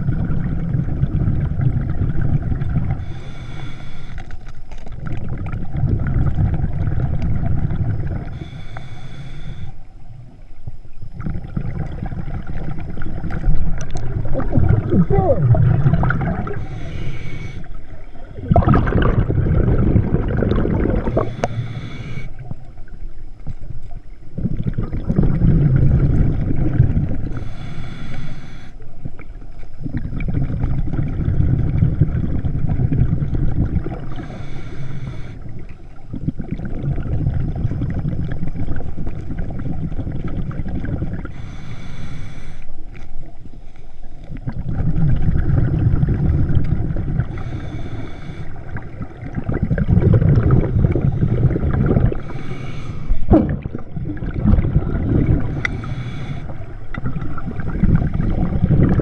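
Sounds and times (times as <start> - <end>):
rumbling exhaust bubbles: 0.0 - 3.2, 5.0 - 8.4, 11.2 - 16.9, 17.8 - 21.6, 24.4 - 27.4, 29.8 - 34.4, 44.3 - 52.5, 53.2 - 59.0
hissing regulator inhales: 3.0 - 4.5, 8.2 - 10.0, 16.4 - 18.4, 20.9 - 22.6, 27.3 - 28.9, 34.0 - 35.6, 41.2 - 43.0, 47.2 - 49.0, 50.9 - 53.3, 55.2 - 56.9.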